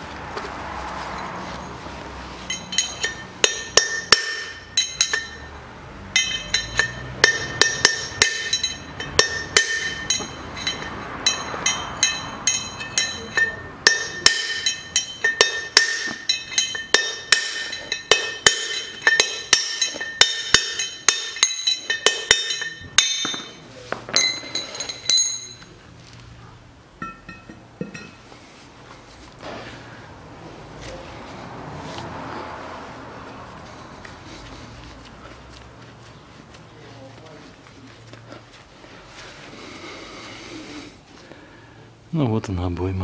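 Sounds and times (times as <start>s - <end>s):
hammer striking steel drift: 2.5s - 25.7s.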